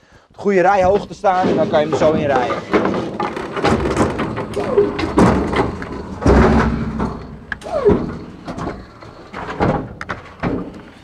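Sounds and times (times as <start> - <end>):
pallet truck knocks and clunks: 0.9 - 11.0
short falling squeak: 3.4 - 9.6.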